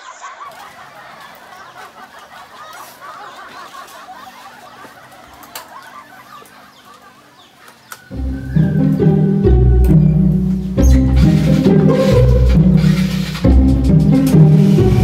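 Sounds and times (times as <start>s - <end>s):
chickens clucking: 0.0s - 15.0s
loud music: 8.1s - 15.0s.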